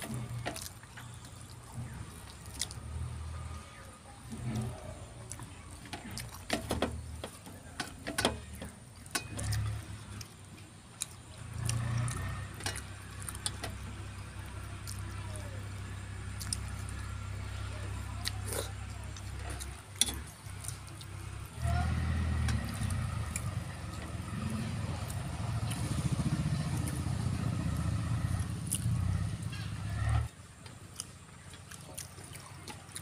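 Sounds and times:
chewing and lip smacks: 0.0 - 21.9, 28.4 - 29.7, 30.7 - 33.0
vehicle engine hum: 0.0 - 33.0
fingers working rice on steel plates: 4.2 - 27.1.

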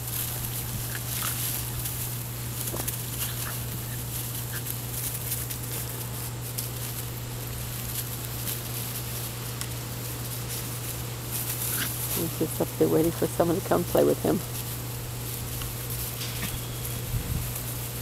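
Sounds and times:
straw rustling: 0.0 - 18.0
puppies squeaking: 16.2 - 17.2.

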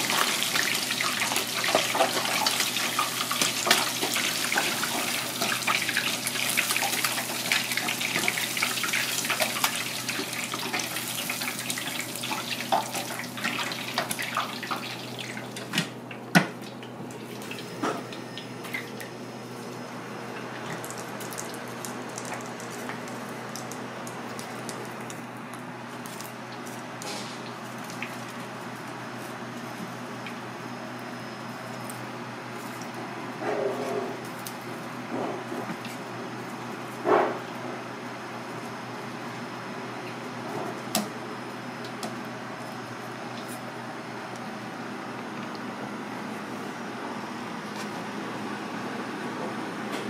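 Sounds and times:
oil sizzling in deep fryer: 0.0 - 33.0.

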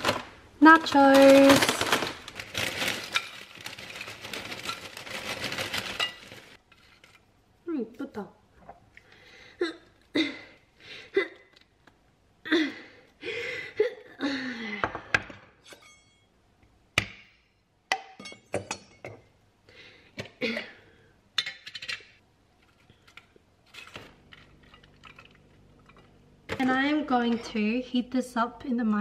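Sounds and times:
rustling: 1.0 - 7.2.

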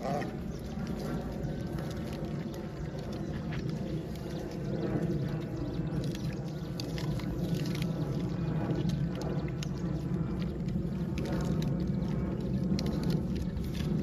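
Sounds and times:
steady low rumble: 0.0 - 14.0
monkey crunching an apple: 5.4 - 14.0.

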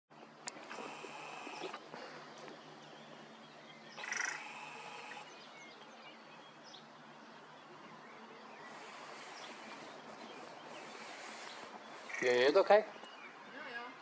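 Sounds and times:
crow call: 4.0 - 5.3.

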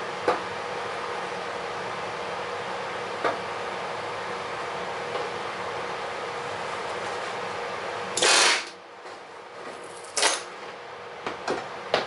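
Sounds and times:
pneumatic rivet gun bursts: 8.2 - 8.8.

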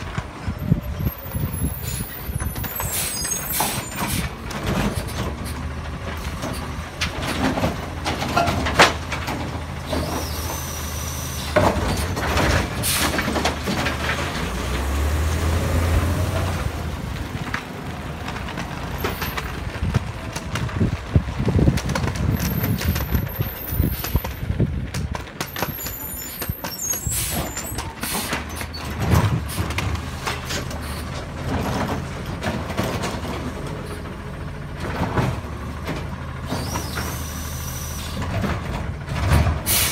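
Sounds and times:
clanks and bangs of dumping cart: 0.0 - 39.9
garbage truck diesel engine: 0.0 - 39.9
air brakes hissing: 2.8 - 4.4, 25.9 - 28.7, 36.5 - 38.2, 39.7 - 39.9.

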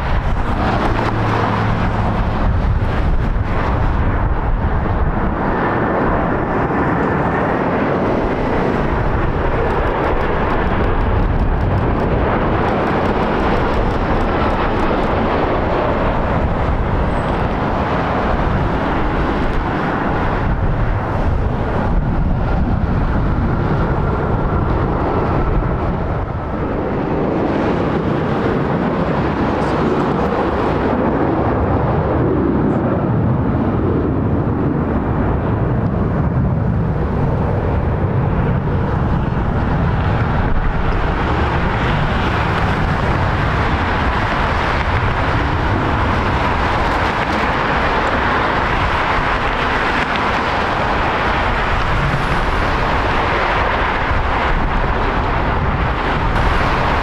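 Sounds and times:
jet engines roaring: 0.0 - 57.0.

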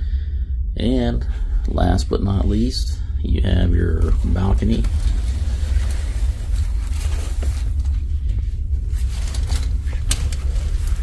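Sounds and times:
steady low rumble: 0.0 - 11.0
curtains rustling: 4.0 - 11.0
curtain track clicks: 9.2 - 11.0.

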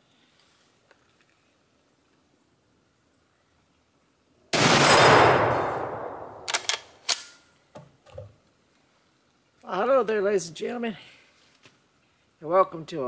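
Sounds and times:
rifle shot: 4.6 - 7.2
rifle bolt metallic clicks: 6.1 - 7.4.

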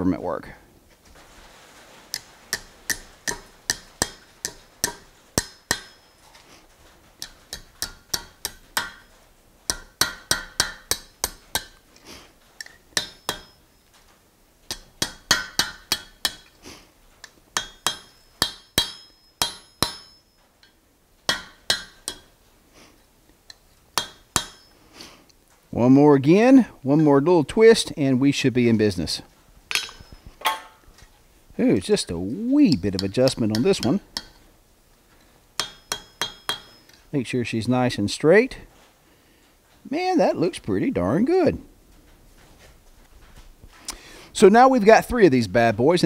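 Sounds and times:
hammer striking hot steel on anvil: 2.5 - 6.2, 7.2 - 11.8, 12.6 - 13.8, 14.7 - 16.6, 17.6 - 22.4, 24.0 - 24.8, 29.7 - 30.9, 32.7 - 34.5, 35.6 - 37.0.

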